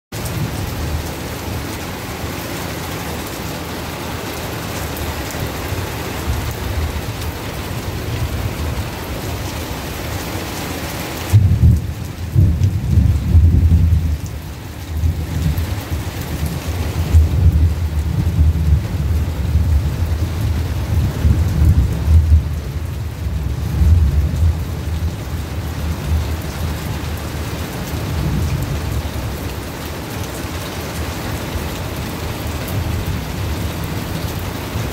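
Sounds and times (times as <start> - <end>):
rain hiss: 0.2 - 34.9
rolling thunder: 11.3 - 27.2.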